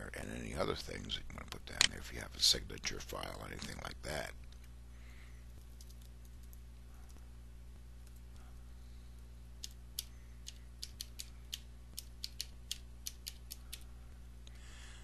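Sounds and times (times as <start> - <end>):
faint low hum: 0.0 - 15.0
keyboard typing: 9.6 - 13.9.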